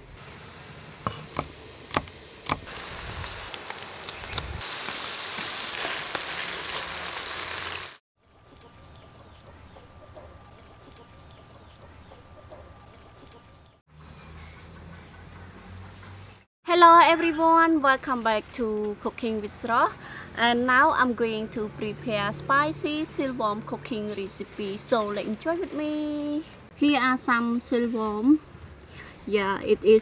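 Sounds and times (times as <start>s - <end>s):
deep-frying in bubbling oil: 0.2s - 10.0s
knife chopping on wooden board: 1.0s - 2.7s.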